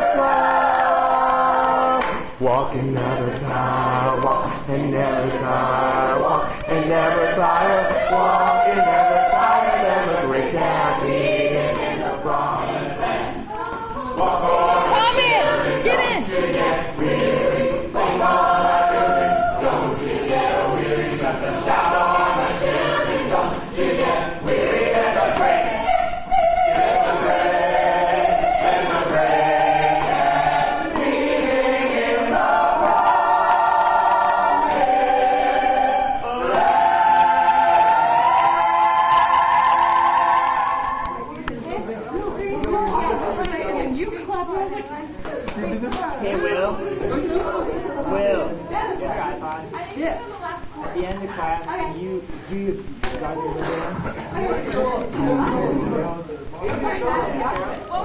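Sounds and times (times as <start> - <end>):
mixed chorus singing: 0.0 - 41.9.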